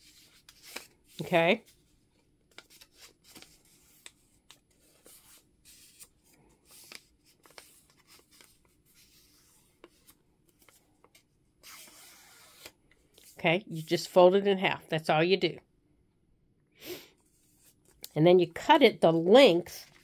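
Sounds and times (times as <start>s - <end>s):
paper being folded and creased: 0.0s - 13.4s.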